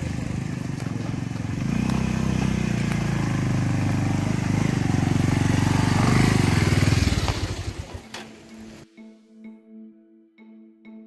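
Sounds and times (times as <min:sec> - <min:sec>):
motorcycle engine passing by: 0:00.0 - 0:08.8.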